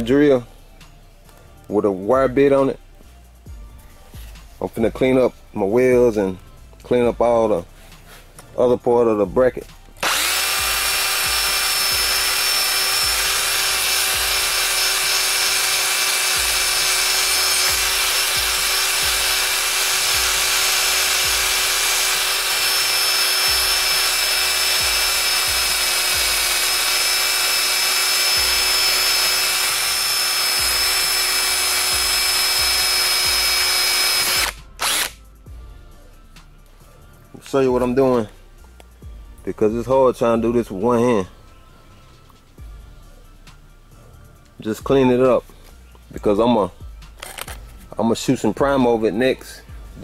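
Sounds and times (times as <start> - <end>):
drill wire brush scraping steel: 10.0 - 35.1.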